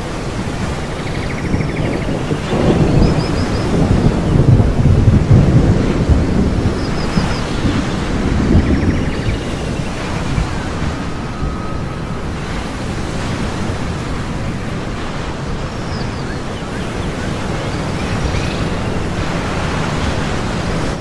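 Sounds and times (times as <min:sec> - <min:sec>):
ocean surf: 0:00.0 - 0:21.0
wind: 0:00.0 - 0:21.0.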